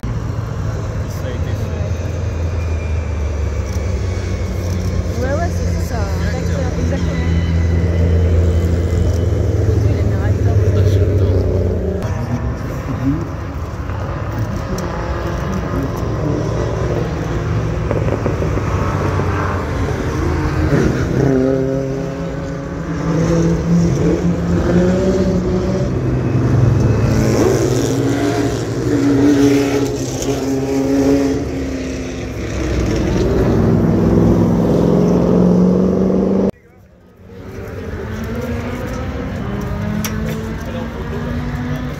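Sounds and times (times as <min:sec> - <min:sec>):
racing cars driving past: 0:00.0 - 0:41.9.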